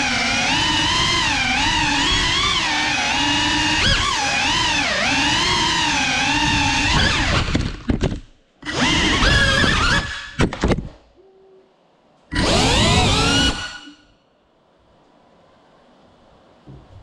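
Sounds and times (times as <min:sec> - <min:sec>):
drone motors whining: 0:00.0 - 0:07.9, 0:08.6 - 0:10.4, 0:12.3 - 0:14.1.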